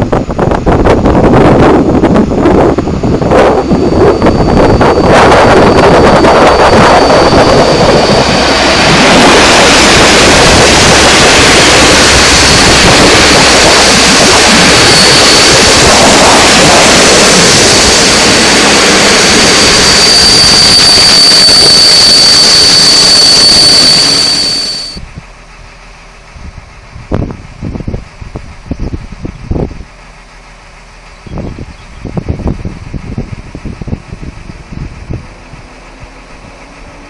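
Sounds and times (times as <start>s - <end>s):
thin high whine: 0.0s - 26.3s
train passing at speed: 0.0s - 37.0s.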